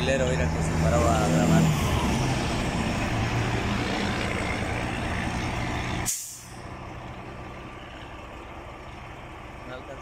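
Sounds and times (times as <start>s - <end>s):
truck engine running: 0.0s - 10.0s
short sharp hiss: 6.0s - 6.6s.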